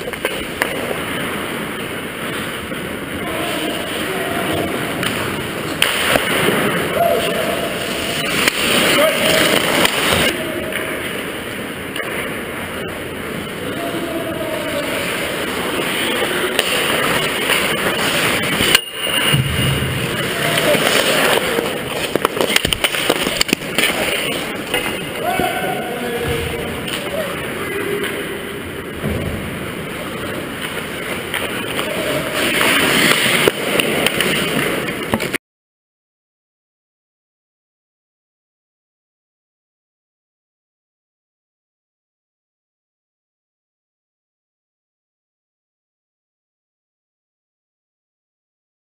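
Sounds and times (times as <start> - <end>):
hockey sticks and puck clacking: 0.0 - 13.0, 14.8 - 28.3, 29.0 - 35.4
rink background noise: 0.0 - 35.4
skates on ice: 0.0 - 35.4.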